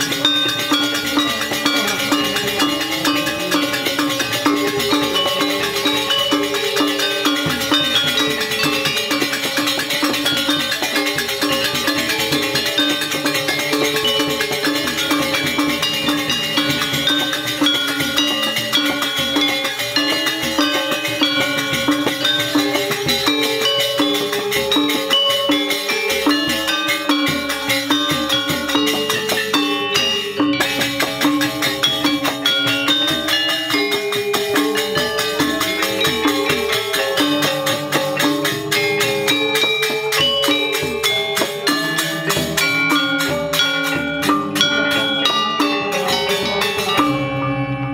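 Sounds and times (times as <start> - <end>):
gamelan metallophones ringing: 0.0 - 47.9.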